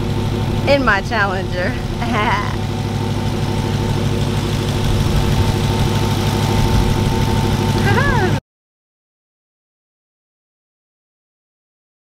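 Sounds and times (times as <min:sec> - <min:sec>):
car engine idling with whine: 0:00.0 - 0:08.4.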